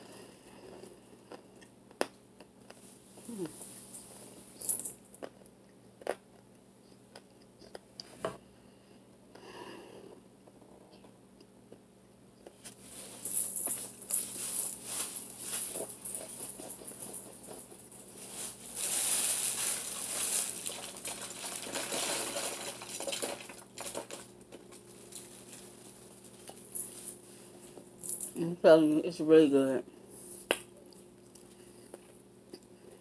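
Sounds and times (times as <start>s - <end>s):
crunching dry starch chunks: 18.3s - 26.6s.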